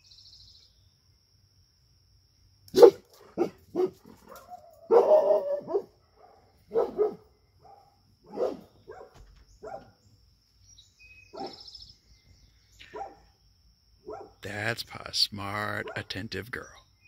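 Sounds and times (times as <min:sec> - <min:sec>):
dog barking: 0:02.7 - 0:10.0, 0:11.3 - 0:11.7, 0:12.8 - 0:13.3, 0:14.0 - 0:14.4, 0:15.8 - 0:16.1.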